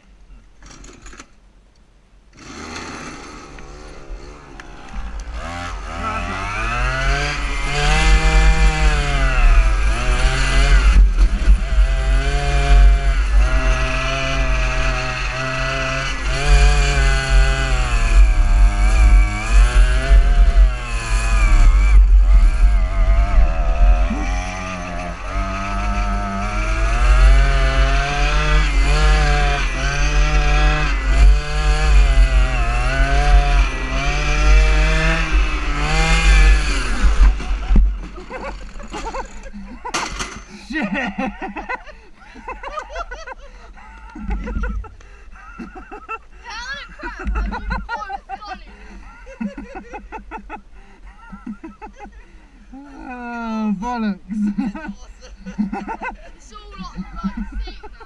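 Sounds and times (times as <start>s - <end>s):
small petrol engine revving: 2.3s - 41.8s, 54.5s - 58.0s.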